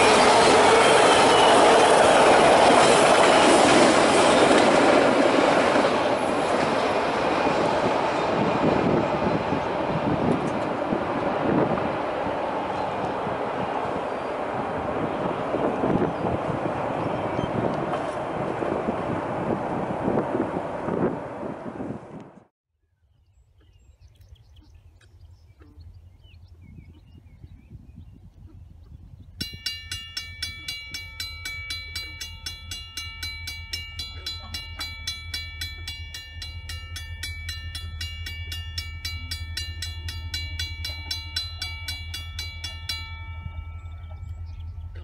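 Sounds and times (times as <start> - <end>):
railroad crossing bell ringing: 0.0 - 11.7, 29.4 - 45.0
low steady rumble: 24.4 - 45.0.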